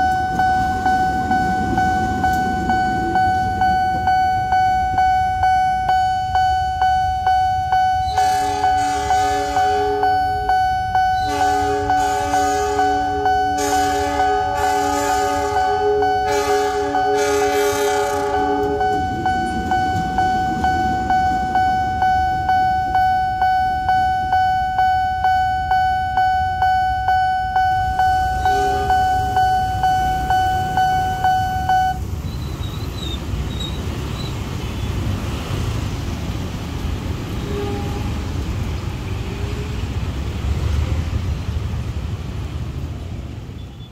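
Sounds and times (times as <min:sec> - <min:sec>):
steady ringing tone: 0:00.0 - 0:08.8, 0:18.2 - 0:32.0
level crossing warning bell: 0:00.0 - 0:32.6
locomotive horn chord: 0:08.0 - 0:10.4, 0:11.2 - 0:19.2, 0:28.4 - 0:29.4
motorcycles and cars rumbling: 0:32.0 - 0:43.9.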